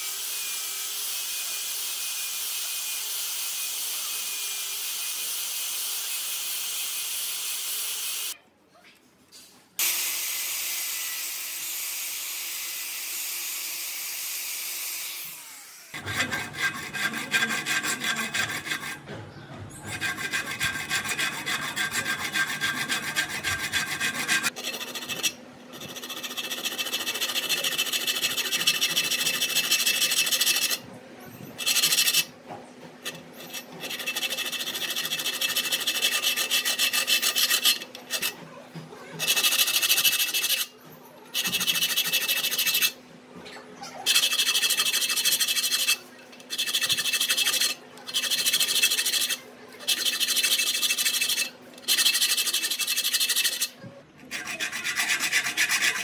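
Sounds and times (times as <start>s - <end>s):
angle grinder on steel: 9.8s - 19.1s, 19.7s - 30.8s, 31.6s - 32.3s, 33.0s - 38.5s, 39.1s - 43.0s, 44.0s - 56.0s
hand file rasping: 15.9s - 30.8s, 31.4s - 32.3s, 32.9s - 43.0s, 44.0s - 56.0s.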